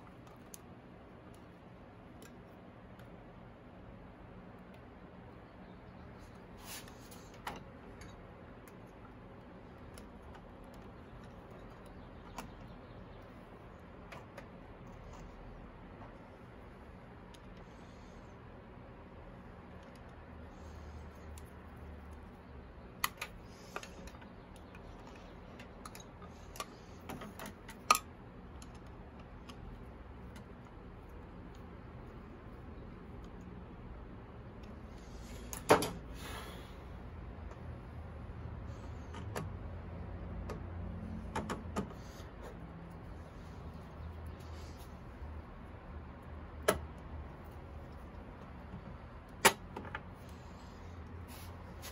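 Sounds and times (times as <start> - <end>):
low steady hum: 0.0 - 51.9
clicks and taps of handled parts: 23.0 - 30.8.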